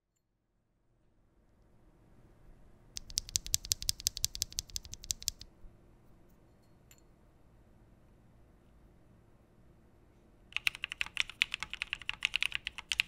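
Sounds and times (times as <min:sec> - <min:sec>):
mechanical keyboard key clacks: 0:03.0 - 0:05.4, 0:10.6 - 0:13.0
faint clicks: 0:03.0 - 0:05.5.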